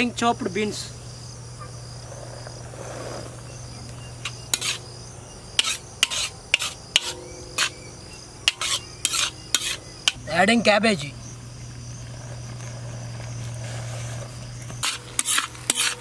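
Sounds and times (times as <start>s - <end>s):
crickets chirping: 0.0s - 16.0s
metal spatula scraping a wok: 4.2s - 4.8s, 5.6s - 7.8s, 8.4s - 10.2s, 13.6s - 16.0s
vegetables sizzling: 13.5s - 16.0s.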